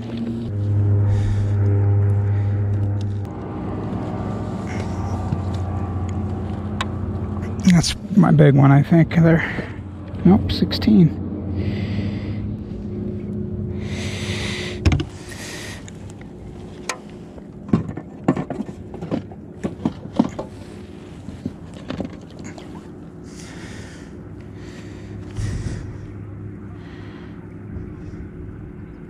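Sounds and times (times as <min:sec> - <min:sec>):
electric trolling motor hum: 0:00.0 - 0:17.7.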